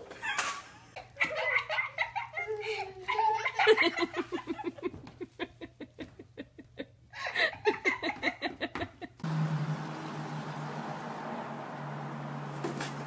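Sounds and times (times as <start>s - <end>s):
person laughing in breathy bursts: 2.0s - 9.2s.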